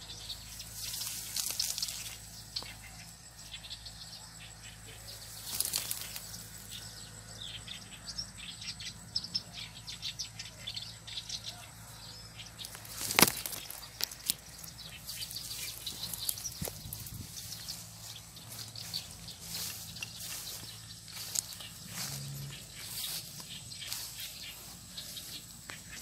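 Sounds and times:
leaves rustling and crackling: 0.2s - 3.0s, 5.0s - 6.8s, 12.6s - 26.0s.

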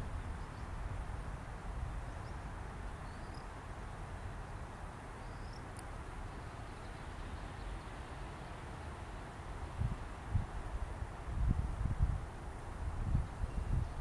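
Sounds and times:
wind on microphone: 9.7s - 14.0s.

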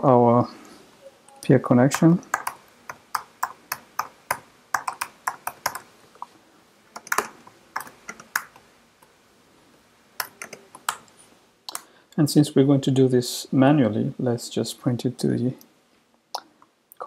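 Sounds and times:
typing on computer keyboard: 2.2s - 5.9s, 7.0s - 8.6s, 10.2s - 11.1s.

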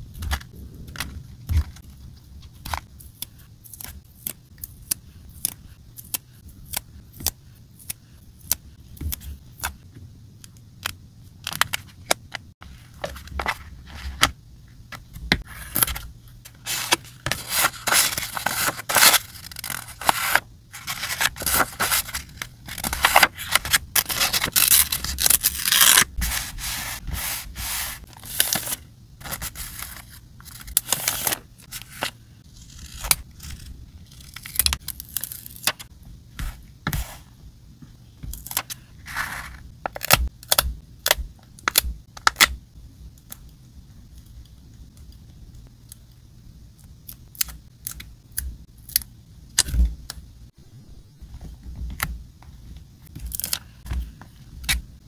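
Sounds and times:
paper rustling and crinkling: 15.4s - 34.7s.

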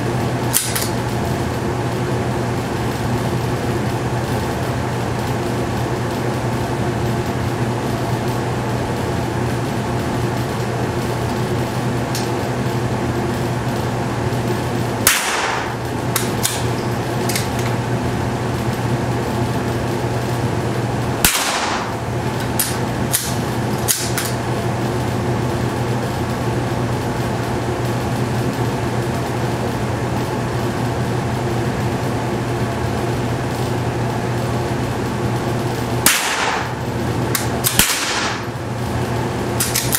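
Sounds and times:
mechanical hum: 0.0s - 39.9s
rifle shots: 15.1s - 15.8s, 21.2s - 22.0s, 36.0s - 36.8s, 37.6s - 38.4s.

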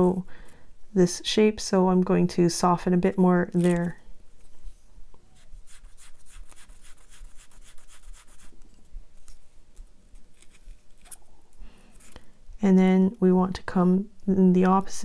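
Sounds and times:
paper strip scratchy rubbing: 5.4s - 8.6s, 10.1s - 11.2s.

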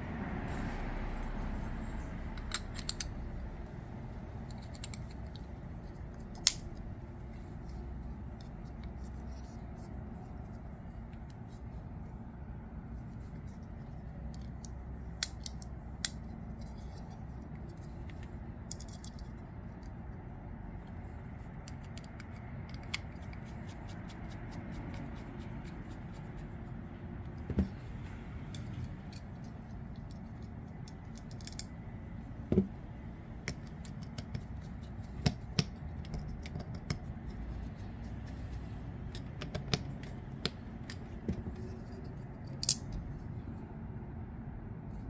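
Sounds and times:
steady low hum: 0.0s - 45.0s
small metallic clicks: 28.5s - 31.8s.

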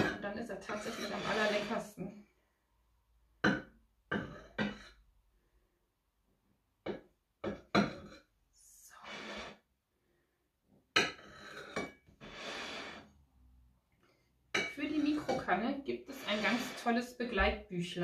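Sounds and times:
knife sawing through cake: 0.7s - 1.8s, 16.1s - 16.9s.

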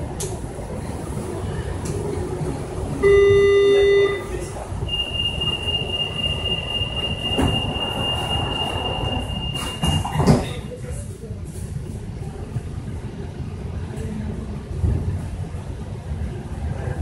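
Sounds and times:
train rumbling at low speed: 0.0s - 17.0s
steady high-pitched beep: 4.9s - 10.1s.

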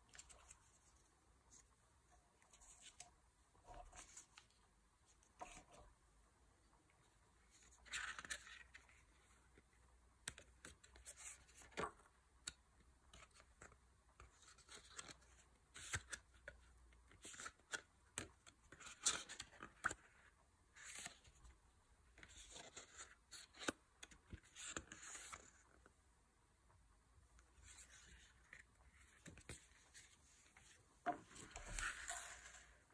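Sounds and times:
paper pages rustling: 27.6s - 32.9s.

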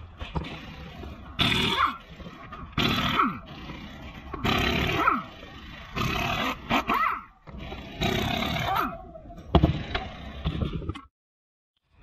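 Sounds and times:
pneumatic impact wrench bursts: 0.3s - 8.8s.

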